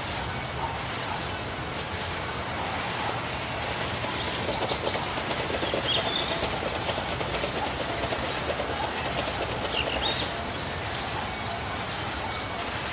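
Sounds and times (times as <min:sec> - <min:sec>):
band saw rattling: 0:03.7 - 0:11.1.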